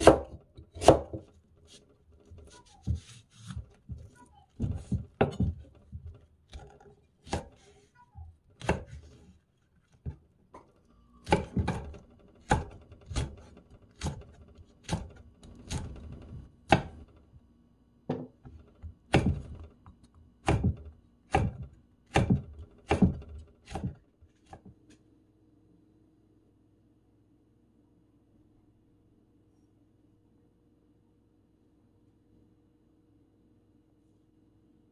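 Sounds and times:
knife chopping on wooden board: 0.0 - 1.8, 2.4 - 7.7, 8.6 - 9.2, 11.2 - 16.0, 16.7 - 17.1, 18.1 - 19.6, 20.4 - 24.7.

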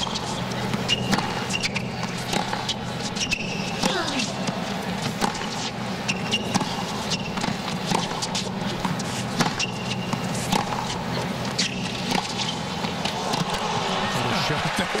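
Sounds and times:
shoes squeaking on court: 0.0 - 13.5
tennis ball bouncing: 0.0 - 13.7
racket hitting tennis ball: 3.8 - 13.8
crowd murmur: 13.0 - 15.0.

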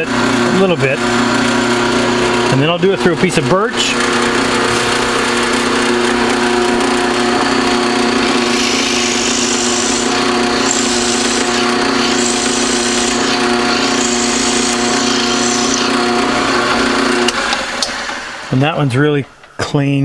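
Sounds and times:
drill press motor running: 0.0 - 18.6
drill bit cutting wood hiss: 8.2 - 16.2.

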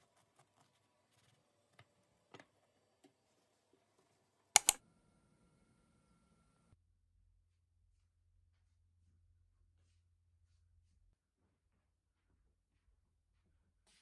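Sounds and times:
sharp clicks: 4.6 - 4.8.

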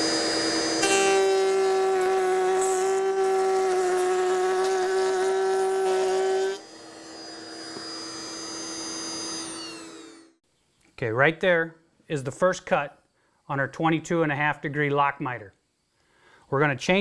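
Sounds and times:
router whining while cutting wood: 0.0 - 10.4.

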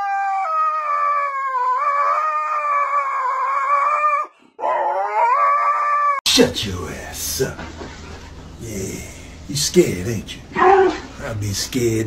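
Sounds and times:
husky howling: 0.0 - 6.2, 10.5 - 11.1.

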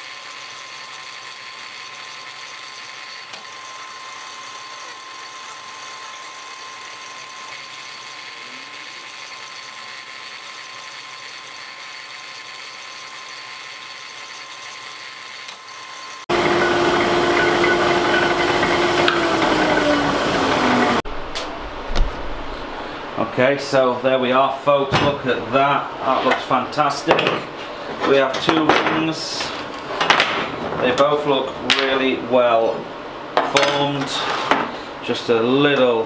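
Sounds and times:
slip rolls motor humming: 0.2 - 22.6.

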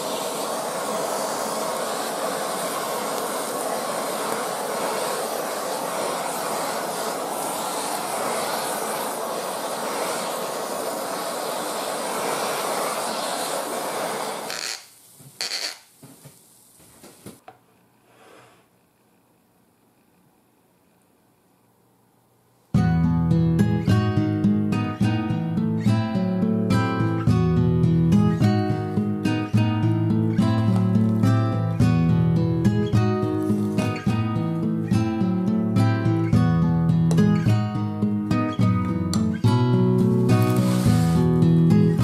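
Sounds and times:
gas torch hissing: 0.0 - 17.4, 28.4 - 36.4, 38.5 - 42.0.

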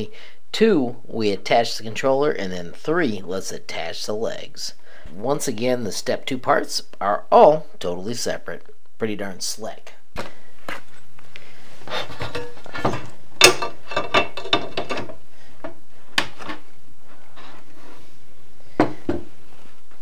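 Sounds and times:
metal clatter: 12.2 - 15.2
metal parts knocking and clicking: 12.3 - 15.2.

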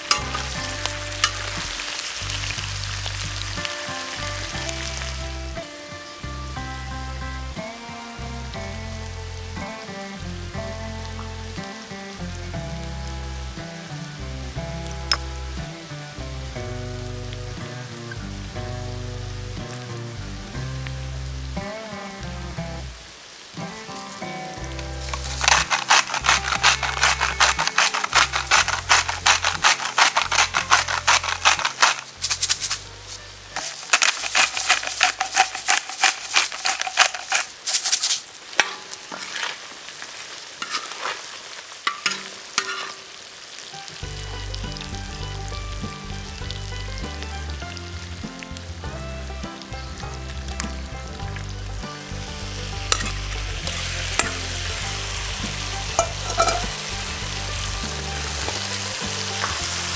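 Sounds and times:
stirring and scraping in pan: 0.0 - 5.2, 24.2 - 43.3, 52.5 - 59.9
meat and onions sizzling: 0.0 - 59.9.

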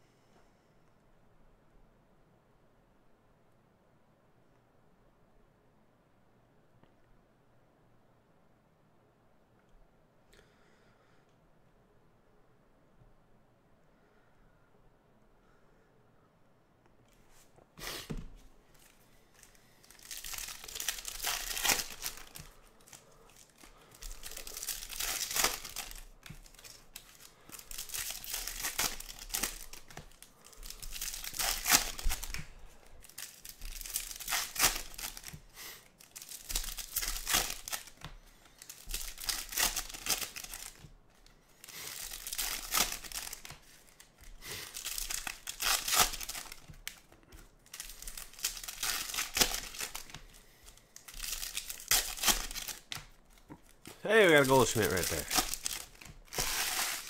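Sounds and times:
foil wrappers tearing and crinkling: 18.8 - 40.9, 41.6 - 57.0.

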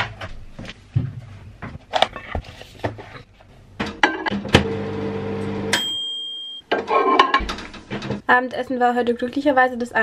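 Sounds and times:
microwave oven humming: 4.3 - 5.9
microwave beep: 4.6 - 6.7.

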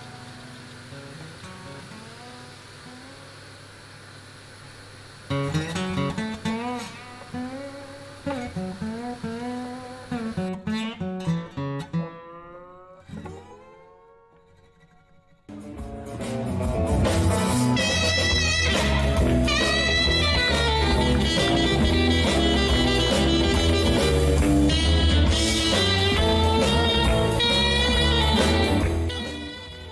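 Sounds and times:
instrumental background music: 15.5 - 29.9.

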